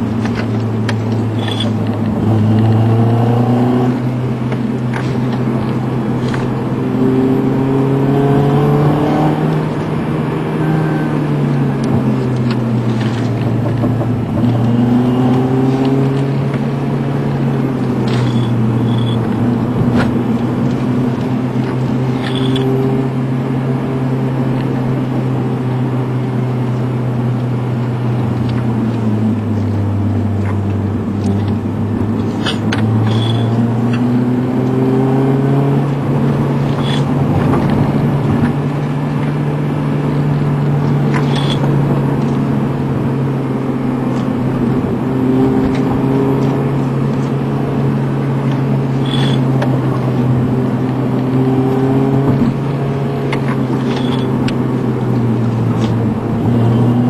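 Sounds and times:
car engine hum: 0.0 - 57.0
tyre noise: 27.7 - 34.6, 35.4 - 57.0.

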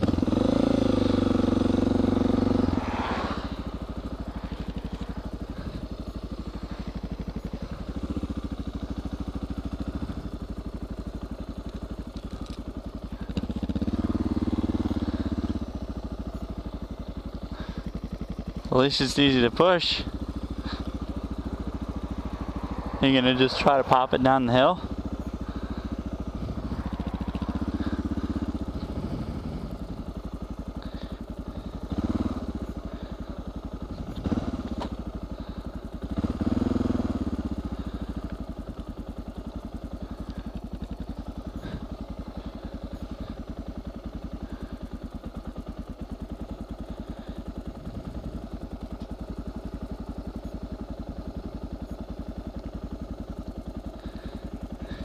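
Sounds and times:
motorcycle engine running: 0.0 - 55.0
motorcycle throttle revs: 0.0 - 55.0.

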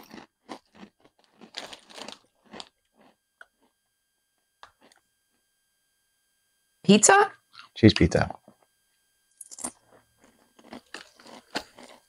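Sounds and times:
crunching potato chips: 0.0 - 3.7, 9.6 - 12.0.

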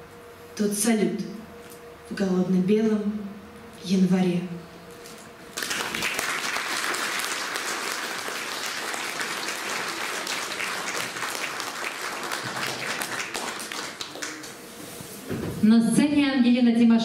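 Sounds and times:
audience applauding: 5.5 - 14.7.

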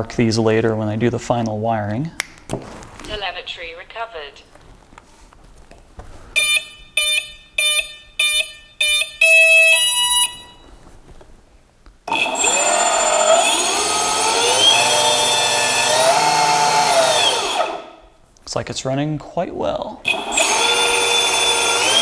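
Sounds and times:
electric motor whine: 12.1 - 17.9, 20.1 - 22.0.

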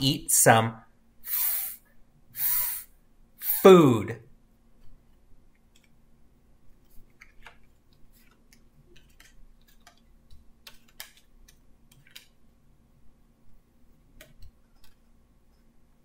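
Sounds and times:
flashcards clicking and tapping: 7.1 - 12.4.

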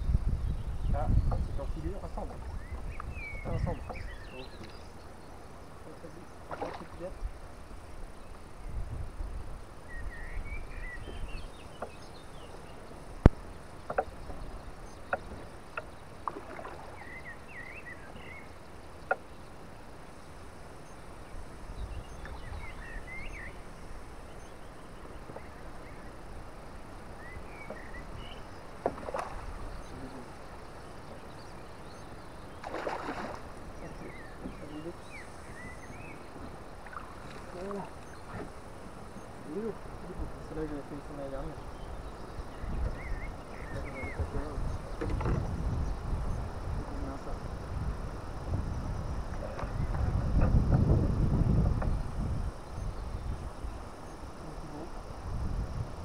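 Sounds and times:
small birds chirping: 0.0 - 56.0
knocks on boat: 15.1 - 16.6, 28.8 - 29.3, 45.0 - 45.6, 49.3 - 51.0
fish splashing: 32.6 - 33.5.

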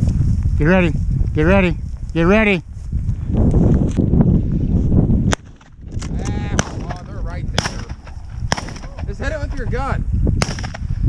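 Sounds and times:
grass brushing microphone: 0.0 - 11.0
wind rumbling on microphone: 0.0 - 11.0
shotgun reports: 6.1 - 10.8.

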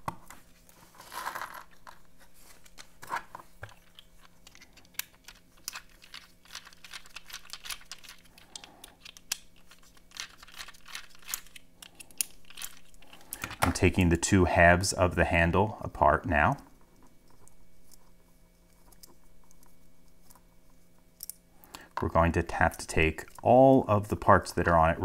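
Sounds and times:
plastic bag crinkling: 3.7 - 13.6.

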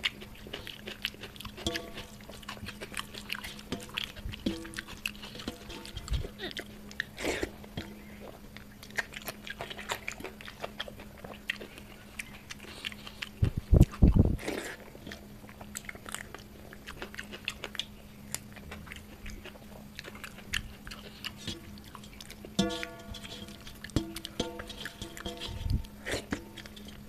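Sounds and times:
fingers working rice on a plate: 0.0 - 8.4, 19.0 - 27.0
faint low hum: 0.0 - 27.0
wet chewing: 0.0 - 27.0.

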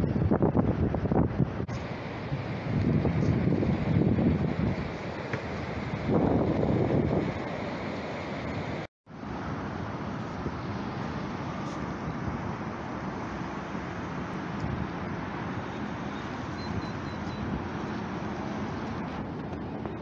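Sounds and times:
wind buffeting microphone: 0.0 - 7.5, 13.8 - 20.0.

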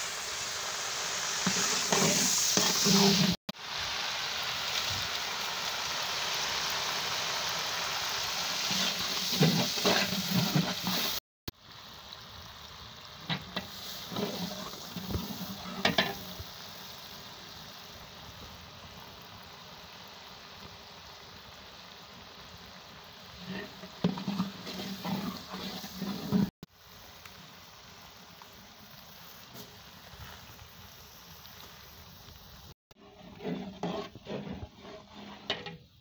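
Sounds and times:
onions sizzling in hot oil: 0.0 - 36.0
iron ladle scraping metal pot: 8.7 - 11.2, 23.4 - 26.5, 33.0 - 35.9.

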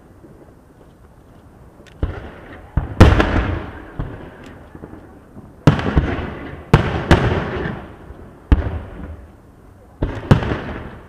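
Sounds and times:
firework shells booming: 2.0 - 5.0, 5.6 - 9.3, 10.0 - 11.0.

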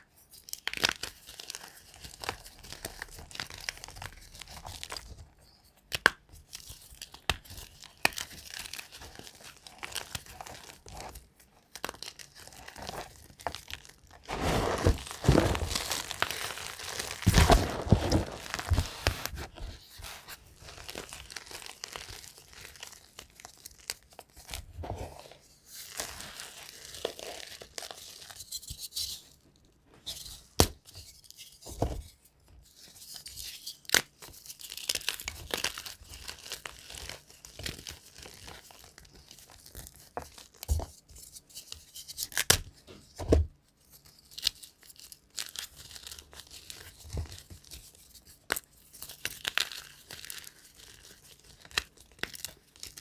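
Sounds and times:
hands crushing chalk blocks: 5.8 - 11.0, 11.7 - 25.0, 48.5 - 53.0.

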